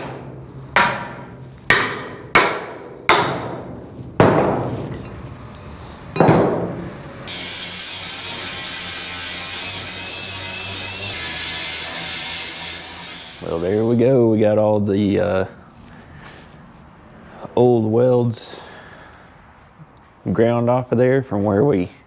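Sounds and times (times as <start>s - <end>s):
hammer striking steel: 0.0s - 5.2s
angle grinder whining: 7.3s - 14.0s.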